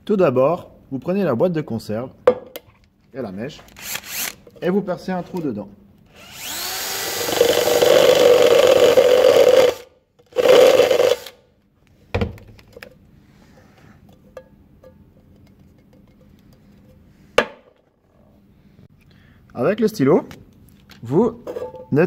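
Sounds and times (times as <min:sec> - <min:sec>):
electric drill boring through metal: 0:03.8 - 0:04.4, 0:06.1 - 0:11.4.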